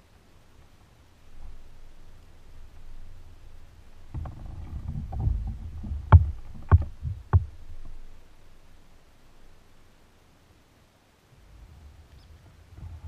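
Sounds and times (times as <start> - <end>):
low rumble on kayak hull: 0.0 - 10.2, 11.3 - 13.0
sharp knocks on kayak hull: 4.1 - 7.6.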